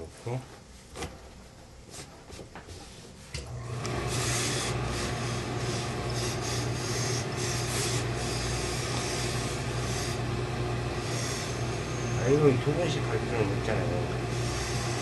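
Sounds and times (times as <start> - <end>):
low machine hum: 3.3 - 15.0
steam iron hissing: 3.8 - 12.9, 13.7 - 15.0.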